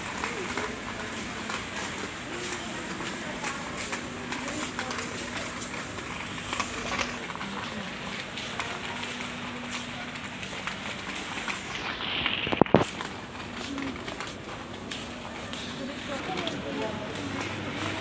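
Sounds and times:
busy supermarket background noise: 0:00.0 - 0:18.0.

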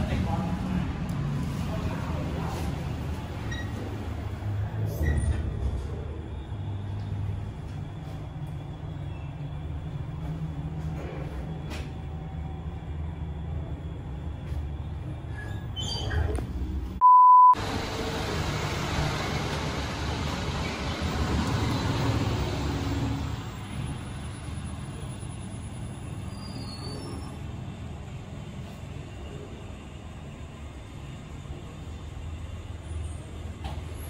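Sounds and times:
short single-pitched beep: 0:17.0 - 0:17.6.

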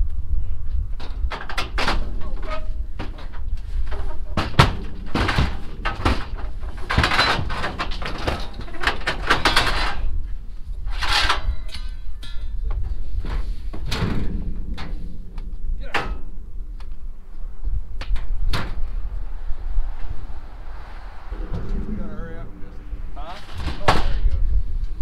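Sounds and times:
wind rumbling on microphone: 0:00.0 - 0:25.0
metal cattle chute knocking and rattling: 0:01.2 - 0:10.1.

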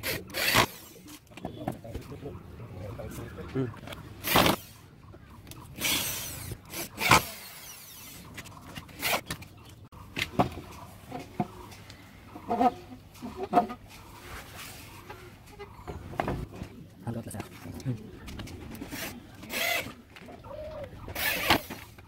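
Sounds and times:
electric drill boring into wood: 0:00.0 - 0:01.0, 0:05.8 - 0:08.2, 0:21.2 - 0:21.8.

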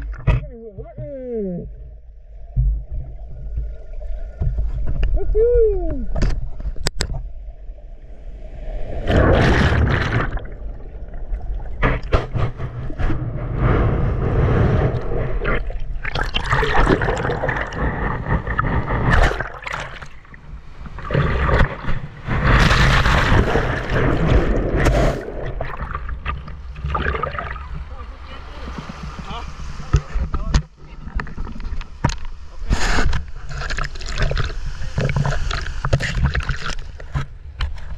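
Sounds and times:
water clicking against camera housing: 0:06.1 - 0:07.2
seawater sloshing and splashing: 0:08.5 - 0:37.9.

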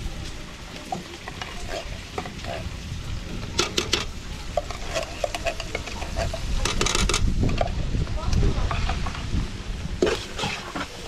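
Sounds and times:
utensil scraping and knocking pot: 0:00.2 - 0:07.8, 0:10.0 - 0:11.0.

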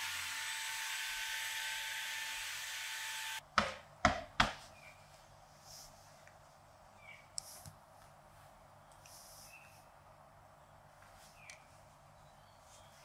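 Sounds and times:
handheld vacuum cleaner whining: 0:00.0 - 0:03.4.

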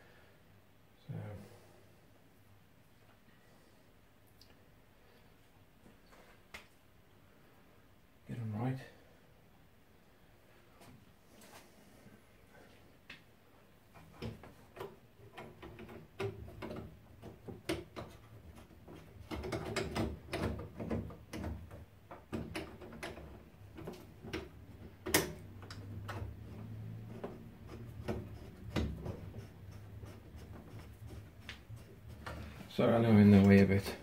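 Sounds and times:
clicks and knocks of pipe parts: 0:13.9 - 0:32.7.

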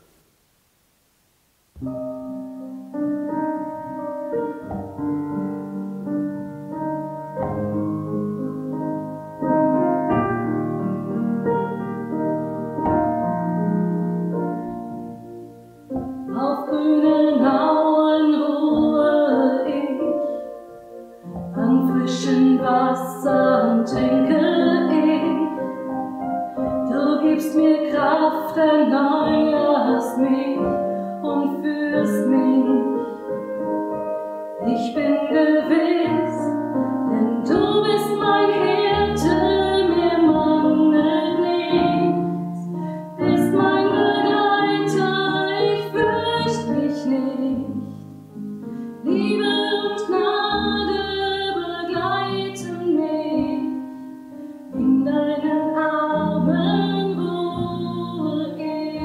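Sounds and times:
digital piano playing: 0:01.8 - 0:59.0
woman singing: 0:16.3 - 0:20.6, 0:21.3 - 0:26.0, 0:26.6 - 0:33.3, 0:34.6 - 0:48.0, 0:49.0 - 0:53.9, 0:54.8 - 0:59.0.

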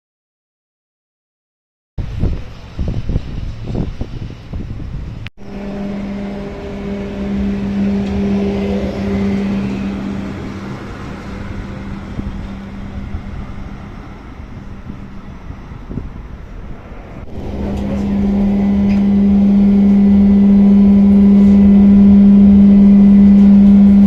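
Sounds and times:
low rumble and knocks: 0:02.0 - 0:24.0
tram electric motor hum: 0:02.0 - 0:24.0
faint high-pitched tone: 0:05.4 - 0:24.0.

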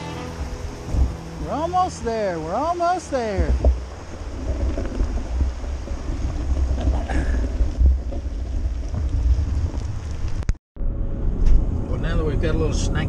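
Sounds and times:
wind buffeting microphone: 0:00.4 - 0:10.6.

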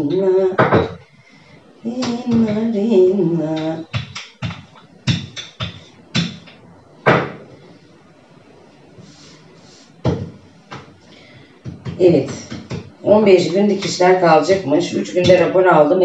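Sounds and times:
rolling pin knocking on countertop: 0:11.6 - 0:12.9.

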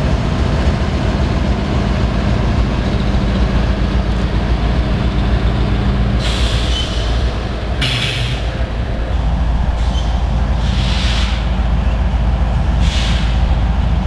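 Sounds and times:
diesel locomotive engine rumbling: 0:00.0 - 0:14.0
loud air hiss: 0:06.2 - 0:08.6, 0:09.7 - 0:11.6, 0:12.8 - 0:13.6.

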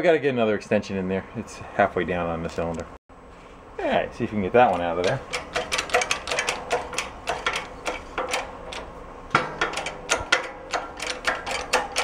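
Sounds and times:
hydraulic press clicking: 0:04.6 - 0:12.0.

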